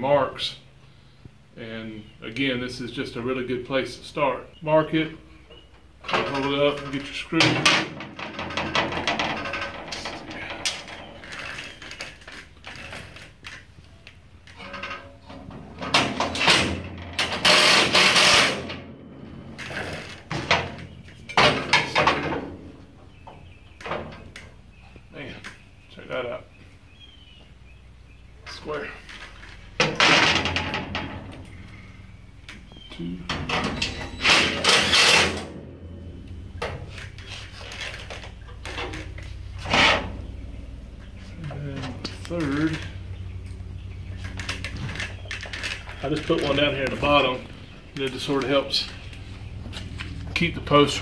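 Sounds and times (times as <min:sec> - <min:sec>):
low steady hum: 0:00.0 - 0:51.0
steel panels knocking and rattling: 0:06.0 - 0:13.7, 0:14.4 - 0:24.7, 0:29.5 - 0:31.8, 0:33.3 - 0:49.2.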